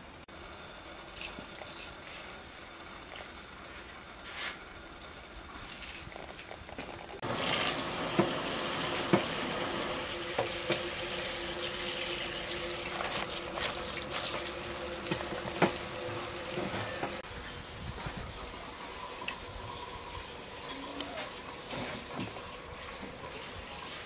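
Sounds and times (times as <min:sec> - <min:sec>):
tap running water into sink: 0:07.3 - 0:17.2.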